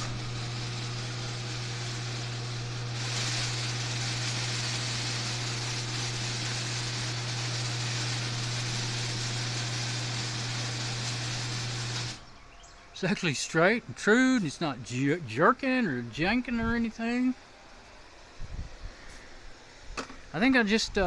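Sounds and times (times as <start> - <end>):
garage door rushing noise: 0.0 - 12.2
garage door opener humming: 0.0 - 12.4.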